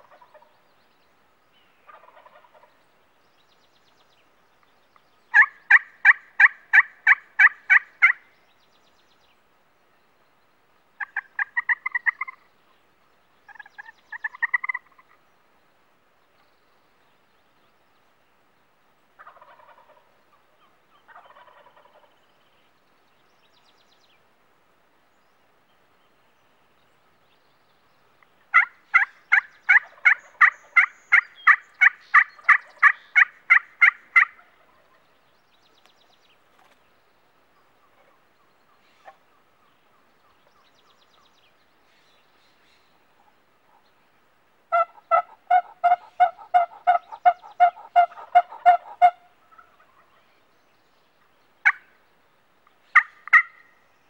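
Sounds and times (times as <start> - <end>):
turkey yelping: 5.3 - 8.2, 11.0 - 12.4, 13.5 - 15.1, 28.5 - 35.0, 44.7 - 50.2, 52.9 - 53.6.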